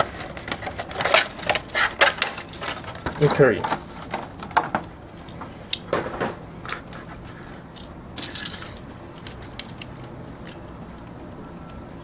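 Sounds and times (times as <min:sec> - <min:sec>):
plastic toy clicks and knocks: 0:07.8 - 0:10.6.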